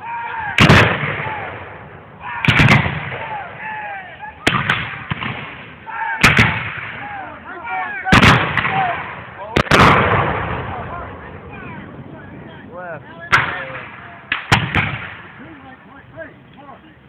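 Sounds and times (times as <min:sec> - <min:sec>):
gunshots with echo: 0:08.1 - 0:10.9, 0:13.3 - 0:15.4.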